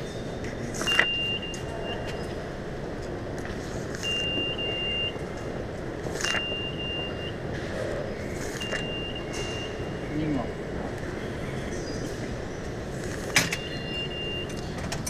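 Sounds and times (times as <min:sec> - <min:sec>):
high steady beep: 0:00.8 - 0:02.3, 0:04.0 - 0:05.5, 0:06.2 - 0:07.5, 0:08.5 - 0:10.3, 0:13.3 - 0:14.6.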